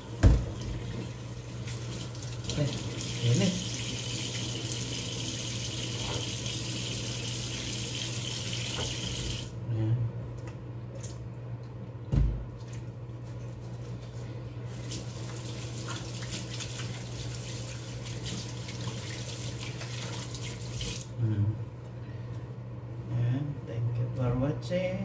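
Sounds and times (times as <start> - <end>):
low steady hum: 0.0 - 25.0
tap running into a sink: 8.4 - 9.5
hands washing under water: 14.7 - 21.1.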